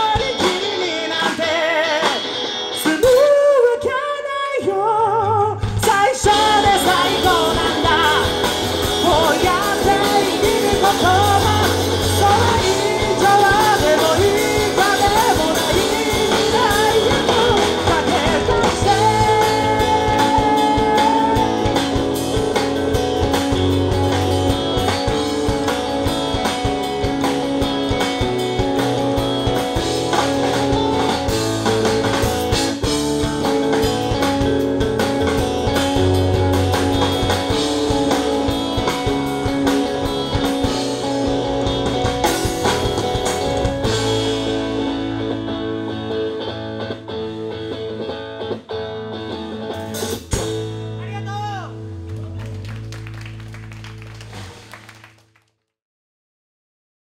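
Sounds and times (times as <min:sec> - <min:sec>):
man singing lead vocal: 0:00.0 - 0:22.0
rock band playing: 0:00.0 - 0:55.4.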